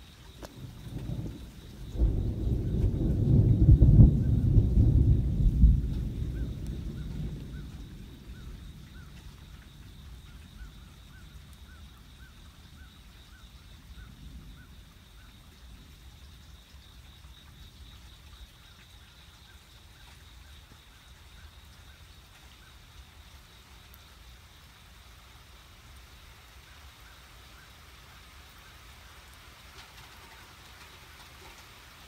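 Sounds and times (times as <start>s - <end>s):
thunder rumble: 0.4s - 11.8s.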